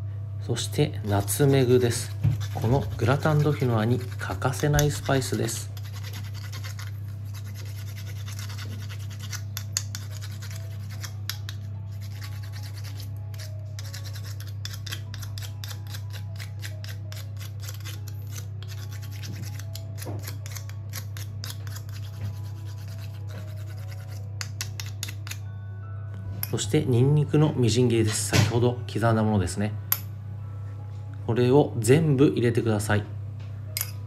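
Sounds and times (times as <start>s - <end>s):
nutmeg scraping on metal grater: 1.1s - 25.4s.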